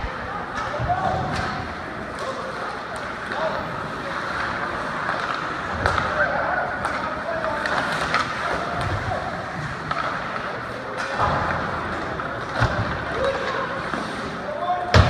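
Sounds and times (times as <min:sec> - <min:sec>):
hockey sticks and puck clacking: 0:00.0 - 0:15.0
skate blades scraping ice: 0:13.6 - 0:14.5.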